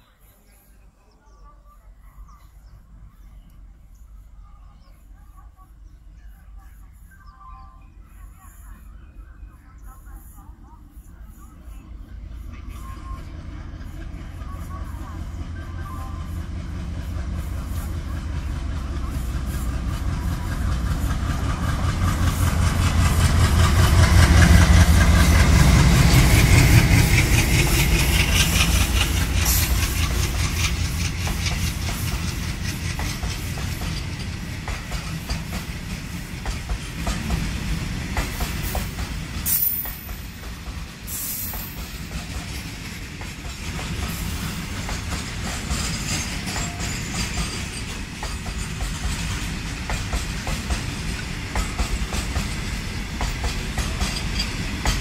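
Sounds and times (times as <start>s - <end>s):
locomotive low rumble: 0.0s - 40.1s
train wheels clickety-clack: 12.3s - 55.0s.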